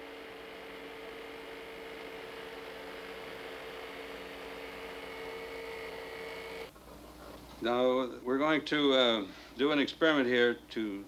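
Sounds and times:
electric fan humming: 0:00.0 - 0:11.0.

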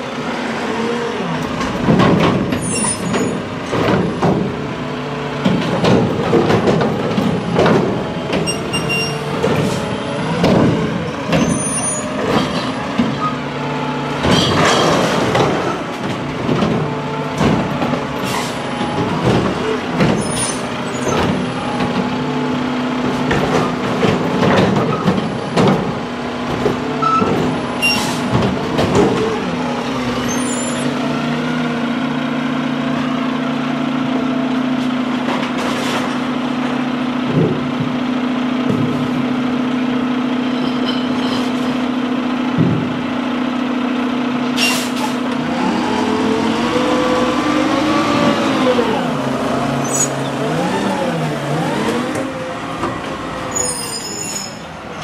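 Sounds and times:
garbage truck engine running: 0:00.0 - 0:55.0
air brakes squealing and hissing: 0:02.6 - 0:03.5, 0:08.4 - 0:10.1, 0:11.4 - 0:13.4, 0:18.2 - 0:18.7, 0:27.0 - 0:28.3, 0:30.2 - 0:30.9, 0:40.5 - 0:41.8, 0:44.6 - 0:45.3, 0:49.8 - 0:50.4, 0:53.5 - 0:54.8
metal clanks and rattles: 0:14.2 - 0:22.1.

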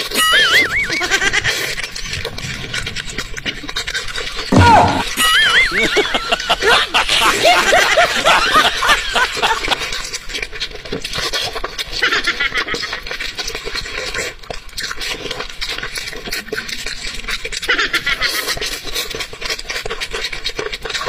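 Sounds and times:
wet chewing and lip smacks: 0:09.6 - 0:12.1, 0:12.7 - 0:21.0.

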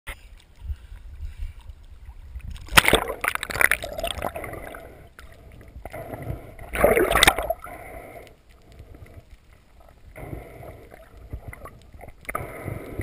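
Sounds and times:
underwater bubbling and gurgling: 0:00.1 - 0:13.0
loud splash: 0:02.7 - 0:04.4, 0:06.7 - 0:07.6.

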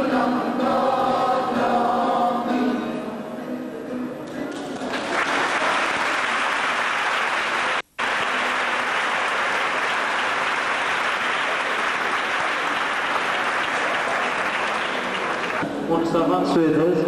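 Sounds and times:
audience applauding: 0:04.5 - 0:15.6.

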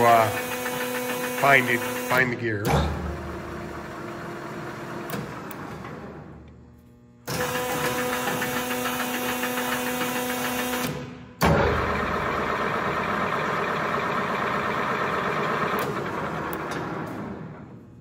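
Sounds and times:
lathe chuck running: 0:00.0 - 0:02.3, 0:07.3 - 0:10.9, 0:11.8 - 0:16.8.

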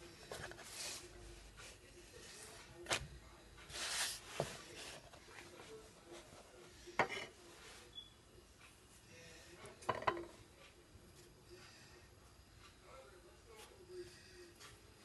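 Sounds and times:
papery pastry rustle: 0:00.2 - 0:06.4.

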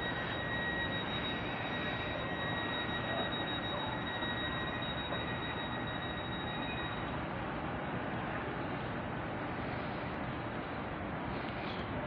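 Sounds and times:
high steady whine: 0:00.0 - 0:12.0
train engine rumbling hum: 0:00.0 - 0:12.0.

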